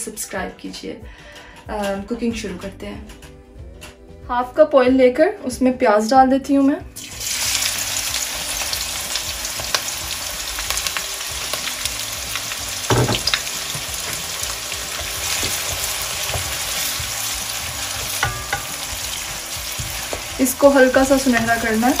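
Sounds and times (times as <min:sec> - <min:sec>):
onion sizzling in oil: 0:07.0 - 0:22.0
spatula stirring in wok: 0:12.8 - 0:22.0
knock: 0:12.9 - 0:13.4.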